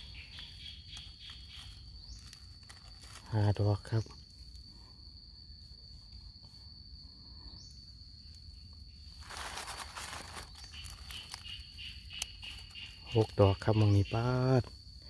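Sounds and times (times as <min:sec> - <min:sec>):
rustle of leaf litter: 0:00.0 - 0:04.0, 0:09.0 - 0:13.6
insect trilling: 0:00.0 - 0:15.0.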